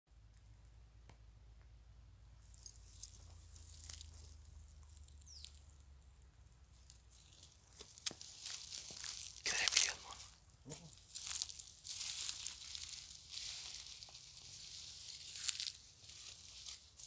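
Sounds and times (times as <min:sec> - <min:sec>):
dog steps rustling dry leaves: 0:02.5 - 0:05.6, 0:07.2 - 0:10.0, 0:11.0 - 0:17.0.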